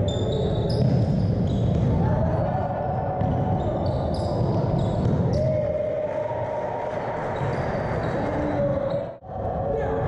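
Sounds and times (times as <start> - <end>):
sneaker squeaks: 0.0 - 1.9, 3.2 - 5.4, 7.4 - 9.1.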